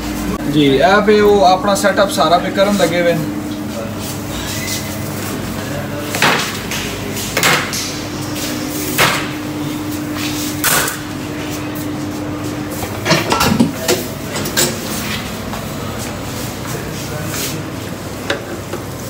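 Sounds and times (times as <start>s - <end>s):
kitchen hum: 0.0s - 19.0s
fryer baskets clanking on metal: 12.4s - 19.0s.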